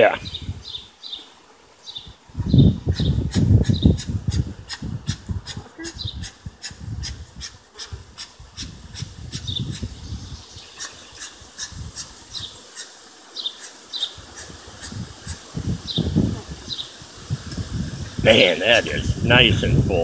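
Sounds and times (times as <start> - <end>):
honeybees buzzing: 0.0 - 20.0.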